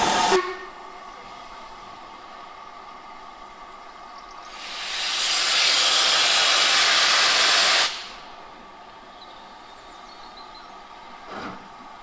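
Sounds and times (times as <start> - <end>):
steam locomotive hissing steam: 0.0 - 1.9, 4.4 - 8.4.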